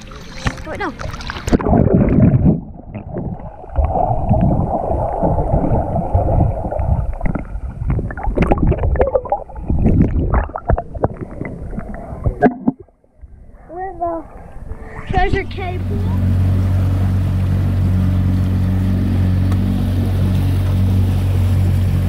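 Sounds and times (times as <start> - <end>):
muffled underwater gurgling: 0.0 - 12.9
water splash: 0.0 - 12.9, 15.7 - 22.0
underwater knocks and clicks: 5.3 - 13.0.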